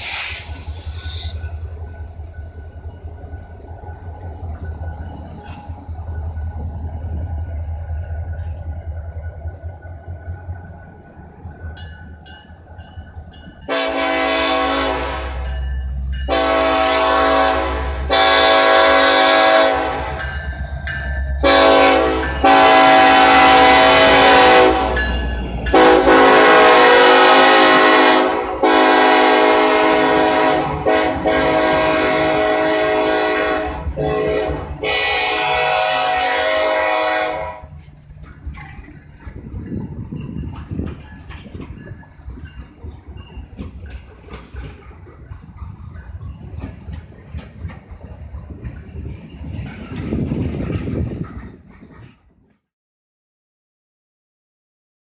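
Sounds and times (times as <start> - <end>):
locomotive air horn blasts: 13.7 - 15.5, 16.3 - 20.3, 21.4 - 25.0, 25.7 - 37.8.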